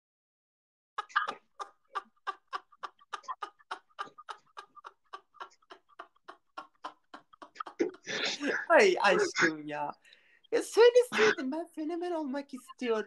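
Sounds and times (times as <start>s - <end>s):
men laughing hard: 1.0s - 9.5s.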